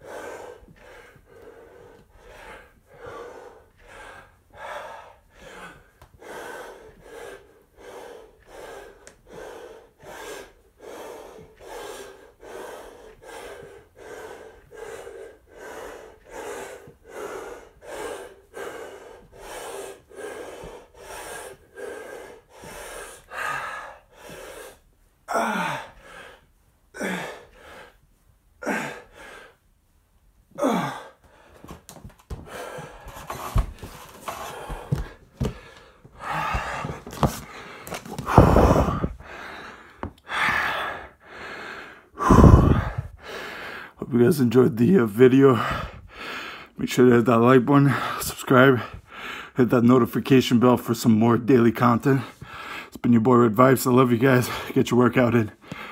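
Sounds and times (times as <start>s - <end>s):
man panting hard: 0.0s - 28.0s, 28.6s - 29.6s, 30.5s - 49.6s, 52.1s - 53.0s, 55.5s - 55.9s
man's voiced exhales: 42.2s - 43.1s.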